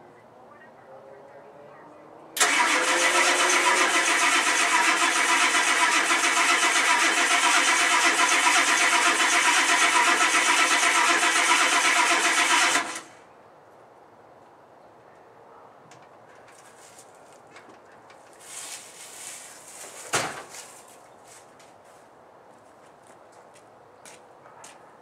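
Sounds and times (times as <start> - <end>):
starter motor cranking: 2.4 - 13.1.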